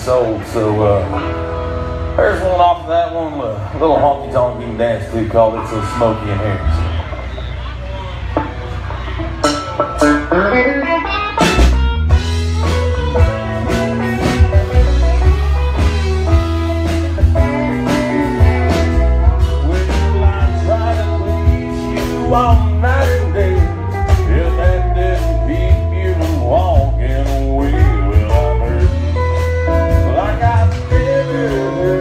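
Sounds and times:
bass line: 0.0 - 32.0
electric guitars: 0.0 - 32.0
drum kit beat: 6.8 - 32.0.

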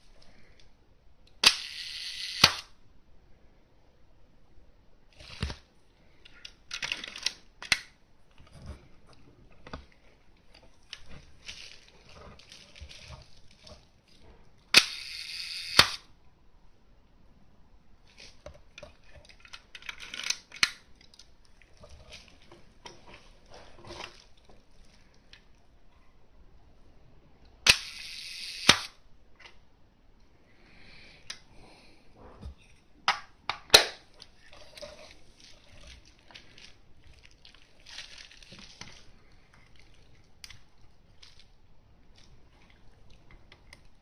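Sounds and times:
camera shutter clicking: 1.4 - 2.7, 14.8 - 16.0, 27.7 - 29.0
shutter whirring: 1.4 - 2.7, 14.8 - 16.0, 27.7 - 28.9.

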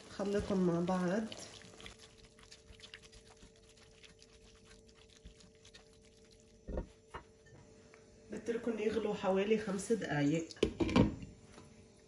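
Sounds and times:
food sizzling in a pot: 0.0 - 7.2
spatula stirring: 0.0 - 7.5.

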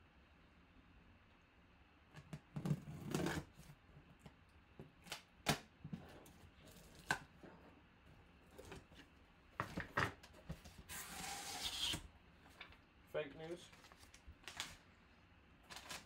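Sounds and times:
cardboard sliding rasp: 10.6 - 12.0.

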